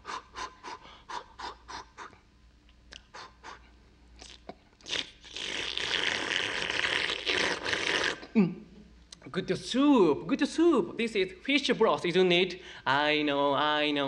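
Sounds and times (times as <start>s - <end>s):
person sniffing quickly: 0.0s - 2.2s, 3.0s - 3.8s
airy hiss through lips: 2.9s - 8.4s.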